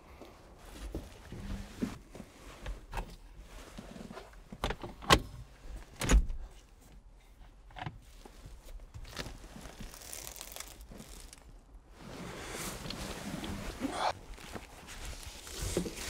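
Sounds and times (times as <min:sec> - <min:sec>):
fabric hood rustling: 0:08.2 - 0:16.0.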